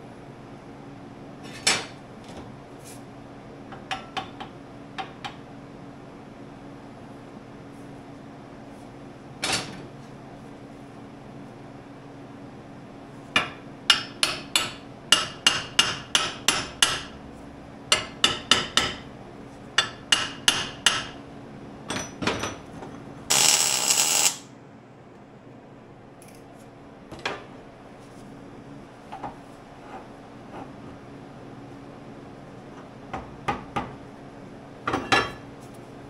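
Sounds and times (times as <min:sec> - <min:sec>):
hammer striking steel: 0:23.3 - 0:24.4.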